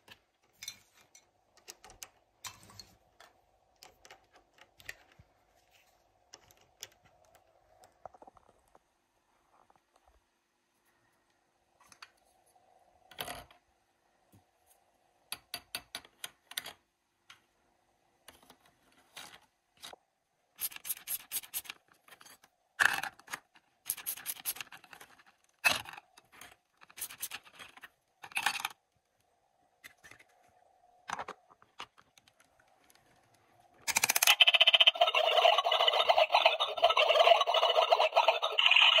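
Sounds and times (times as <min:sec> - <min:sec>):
plastic toy pieces clicking: 0:33.8 - 0:39.0.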